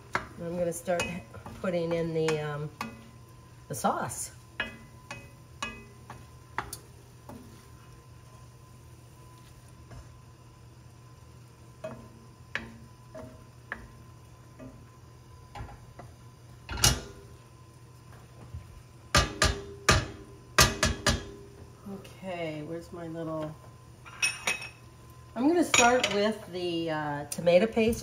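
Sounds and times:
wooden spoon knocking on pot: 0.0 - 3.1, 4.6 - 7.5, 19.1 - 21.4.

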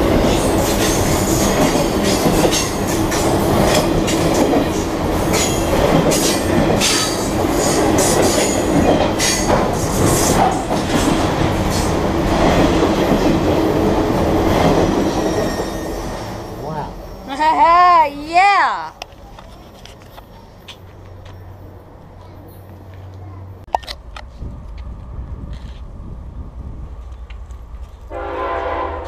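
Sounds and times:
steel wheels rumbling on rail: 0.0 - 29.0
high metallic wheel squeals: 15.0 - 16.4.

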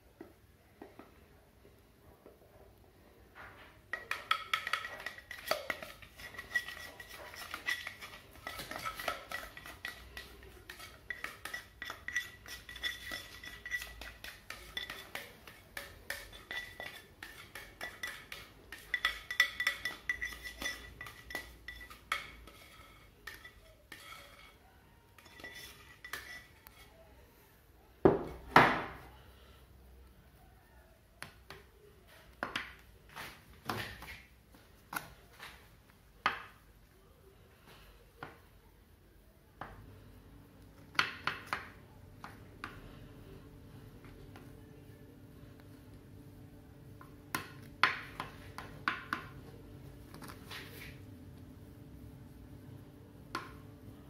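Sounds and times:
spatula knocking on glass dishes: 3.9 - 24.6, 40.9 - 42.8, 47.3 - 49.4.

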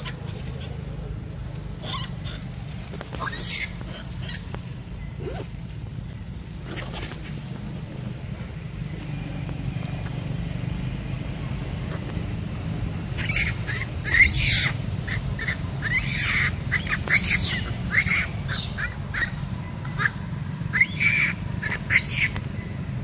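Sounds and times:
monkeys shrieking: 0.0 - 5.4, 6.6 - 7.7, 11.9 - 22.4.

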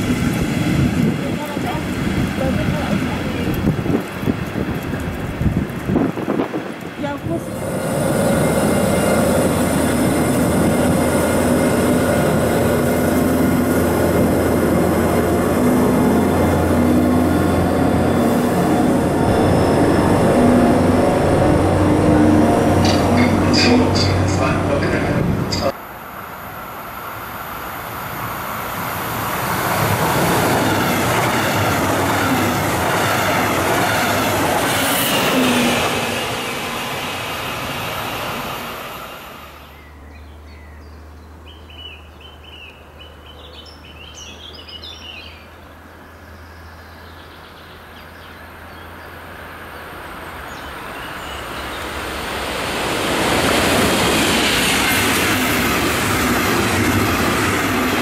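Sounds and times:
train passing at speed: 0.0 - 58.0
low hum: 13.8 - 25.7
birds chirping: 39.6 - 52.1.

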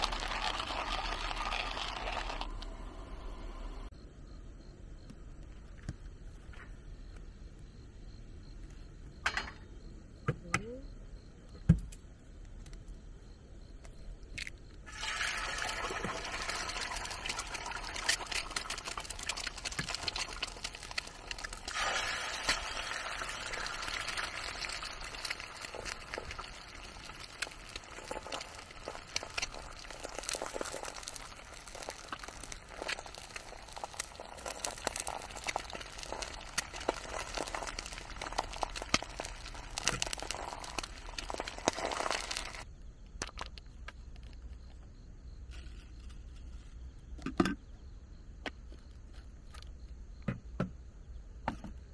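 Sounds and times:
oil spitting crackles: 0.0 - 3.0, 14.9 - 42.7
eggs sizzling in frying pan: 0.0 - 3.9, 14.4 - 44.4.

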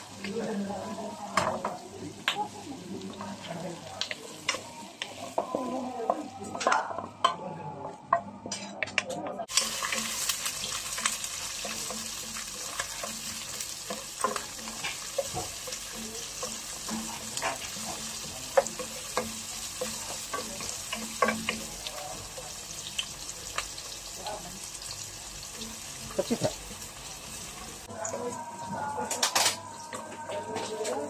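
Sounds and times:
onion sizzling in oil: 0.0 - 7.1, 9.5 - 31.0
wooden spoon scraping a pot: 9.6 - 21.6.

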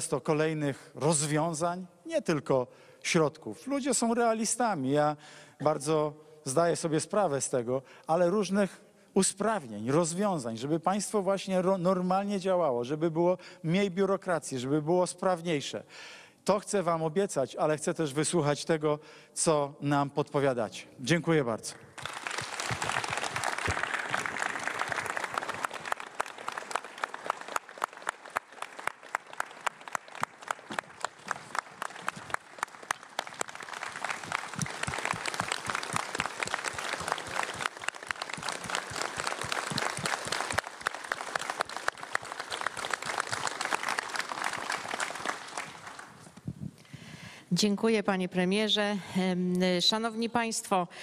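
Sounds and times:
rhythmic clapping: 22.0 - 46.1
crowd applauding: 22.0 - 46.2.

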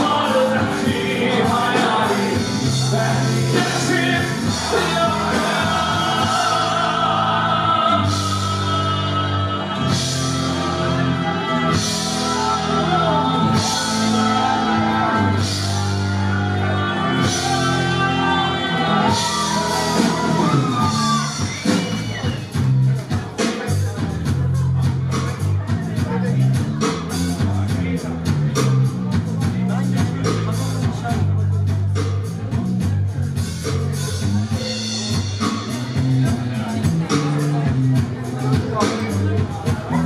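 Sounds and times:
person singing lead vocal: 0.0 - 31.2
rock band playing: 0.0 - 40.0.

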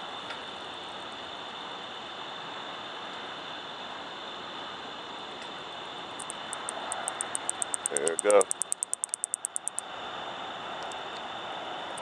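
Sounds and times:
background hiss: 0.0 - 12.0
katydid clicking call: 6.2 - 9.9.

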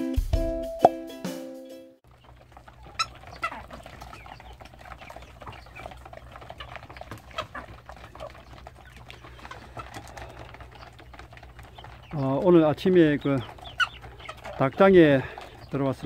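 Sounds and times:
chickens clucking: 2.0 - 16.0
chickens pecking clicks and taps: 2.0 - 16.0
chicken squawks: 2.6 - 12.3, 13.2 - 15.7.

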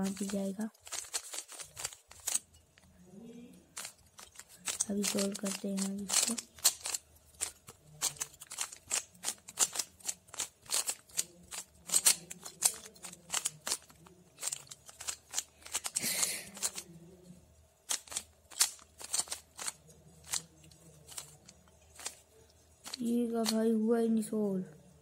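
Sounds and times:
puzzle cube clicking as turned: 0.0 - 2.5, 3.8 - 16.8, 17.8 - 22.2.

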